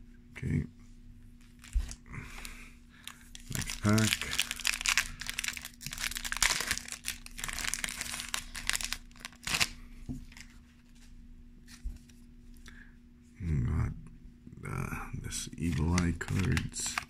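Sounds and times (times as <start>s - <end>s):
foil wrapper crinkling and tearing: 1.6s - 10.6s, 15.6s - 17.0s.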